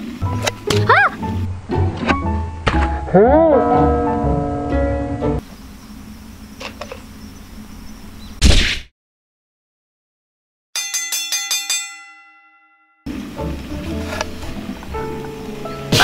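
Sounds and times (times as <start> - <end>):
bell struck rapidly: 10.8 - 13.1.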